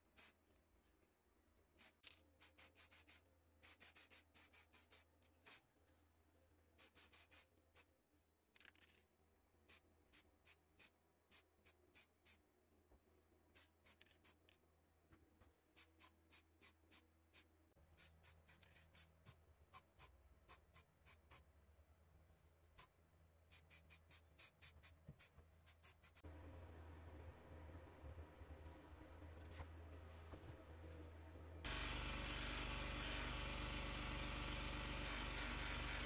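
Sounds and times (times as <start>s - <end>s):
low steady hum: 26.3s - 35.8s.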